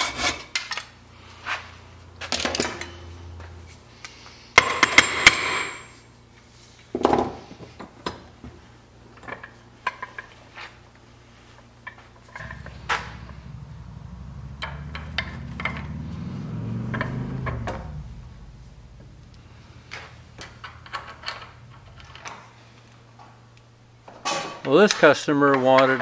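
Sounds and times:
metal parts clicking and rattling: 0:19.8 - 0:23.0.

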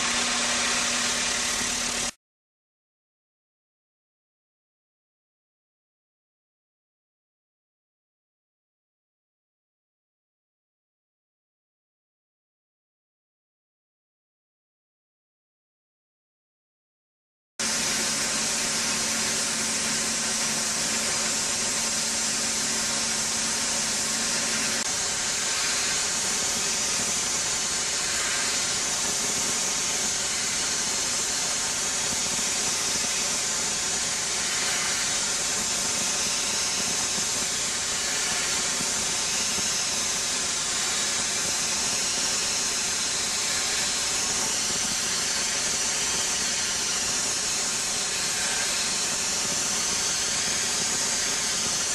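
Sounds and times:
water jet blasting steel hiss: 0:17.6 - 0:51.9.

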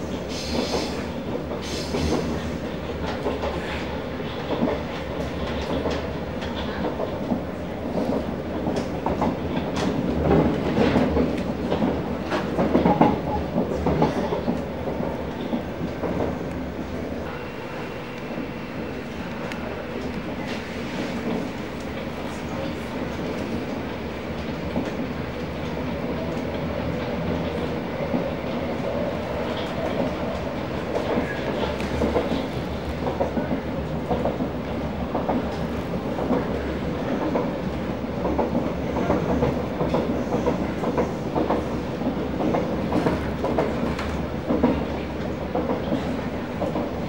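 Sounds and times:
train wheels rumbling on rail: 0:00.0 - 0:47.0
faint clicks: 0:19.2 - 0:20.2.

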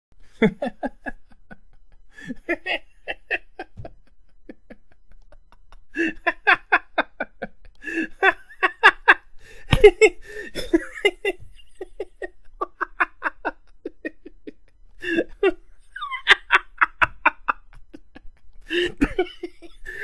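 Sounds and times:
man laughing: 0:00.4 - 0:20.0.

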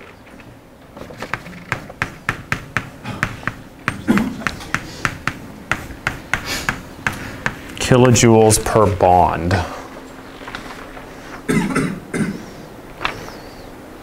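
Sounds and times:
chalk tapping on blackboard: 0:01.7 - 0:07.8.

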